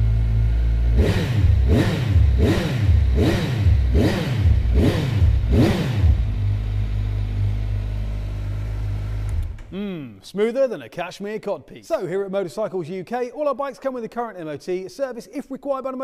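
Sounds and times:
motorcycle engine revving: 0.0 - 9.8.

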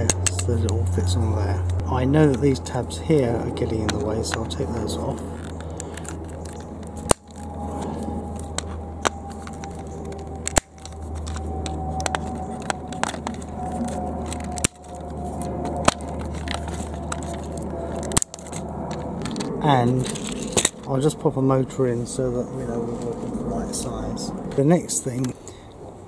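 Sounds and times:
side cutters snapping plastic: 3.6 - 20.9
clicks of plastic being handled: 3.7 - 20.9.

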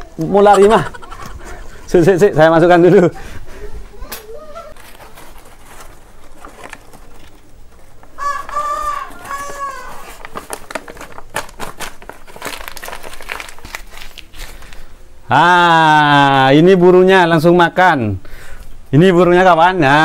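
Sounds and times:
rooster crowing: 8.2 - 10.2.

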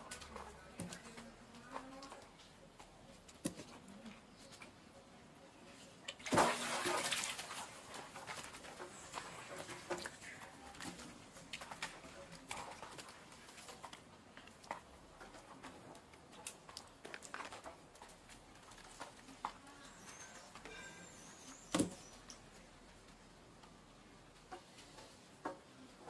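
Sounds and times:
water splashing in a jar: 6.1 - 14.0.

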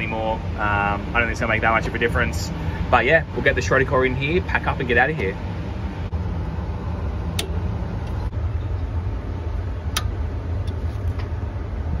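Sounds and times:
low machinery hum: 0.0 - 12.0
sharp metallic clicks: 7.3 - 8.2.

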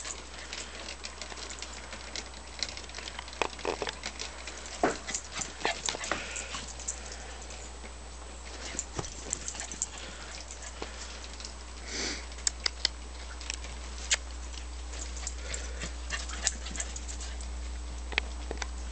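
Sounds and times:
light ticks and rustles: 0.0 - 18.9
steady low hum: 0.0 - 18.9.

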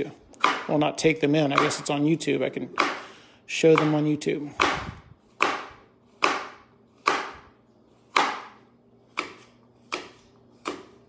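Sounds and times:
knife slicing apple: 0.3 - 0.8, 3.7 - 11.0.

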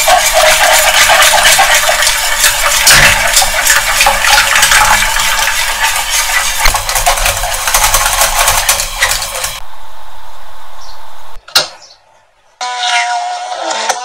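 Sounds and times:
whisk scraping metal saucepan: 0.0 - 9.6.

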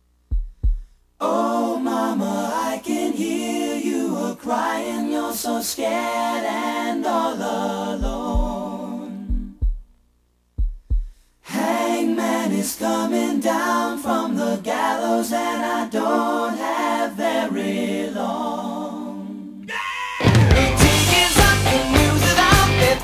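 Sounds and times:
low thumps: 0.3 - 1.0, 8.0 - 8.7, 9.3 - 11.2
a cappella group singing in harmony: 1.2 - 9.7, 11.4 - 23.0.

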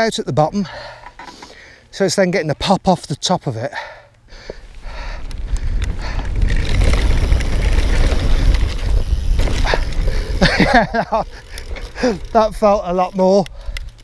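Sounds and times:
bike tyres rumbling over grass: 4.4 - 13.8
wind buffeting microphone: 4.7 - 14.0.

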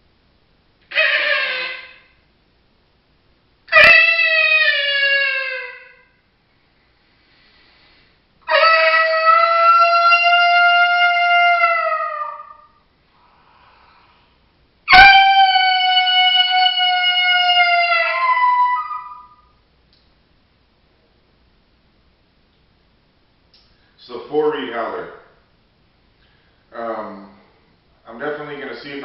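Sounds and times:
coyote howls on a howler call: 3.7 - 6.1, 8.4 - 12.9, 14.9 - 19.6.

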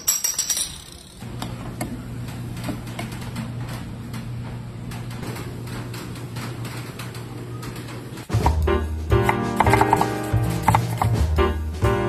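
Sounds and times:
glass bottles clinking: 0.0 - 1.2.

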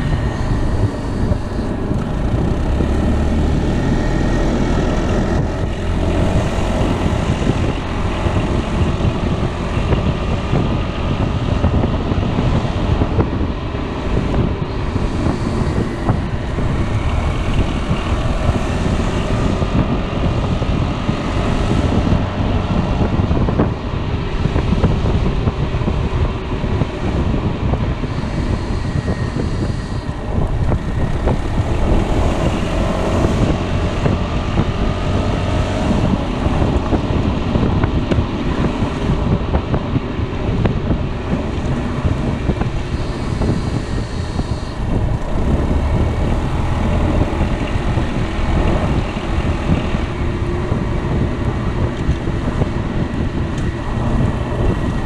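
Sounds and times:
road noise: 0.0 - 55.0
scooter engine: 0.0 - 55.0
wind buffeting microphone: 0.0 - 55.0.

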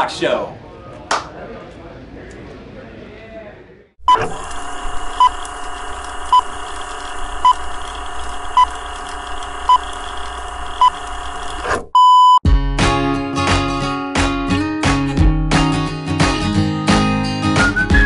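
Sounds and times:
acoustic guitar music: 12.5 - 18.0.

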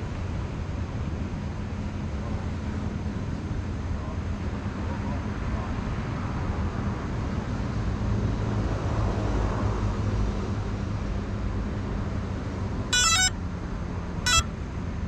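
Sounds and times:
outdoor rumble and hiss: 0.0 - 15.0
buzzy electronic beeps: 13.0 - 13.3.

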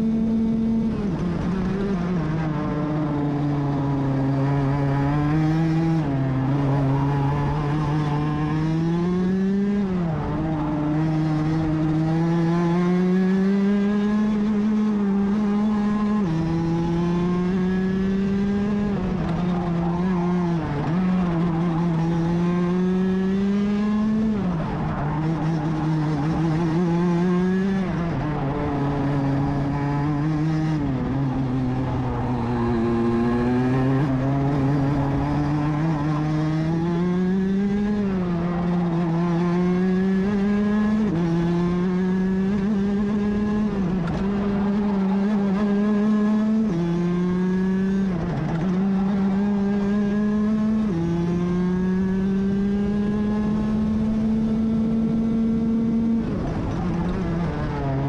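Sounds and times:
kart engine at race pace: 0.0 - 58.0.

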